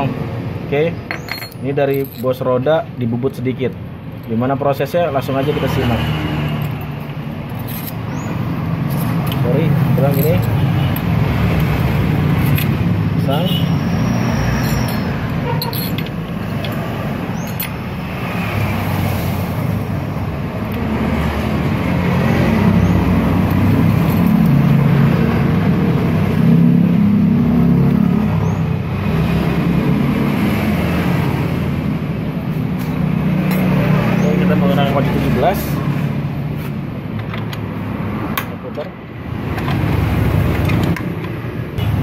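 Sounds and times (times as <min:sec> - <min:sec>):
road traffic rumble: 0:00.0 - 0:42.0.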